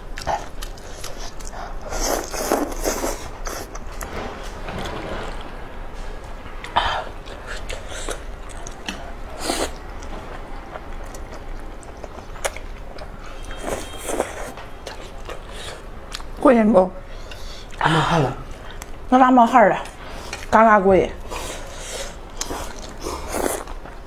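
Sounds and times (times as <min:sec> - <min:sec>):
slurping and chewing noodles: 0:00.2 - 0:03.9, 0:07.2 - 0:10.1, 0:21.2 - 0:24.0.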